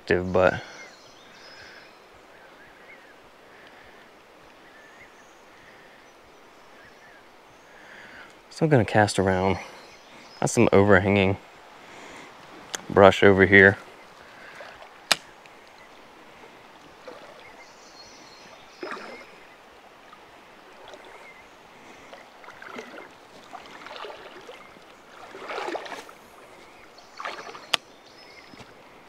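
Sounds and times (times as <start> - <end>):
river water splashing: 9.2 - 29.0.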